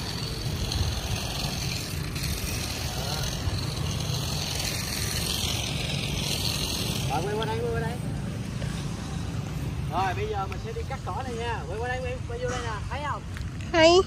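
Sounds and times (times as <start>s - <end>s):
cordless mini chainsaw running: 0.0s - 8.8s.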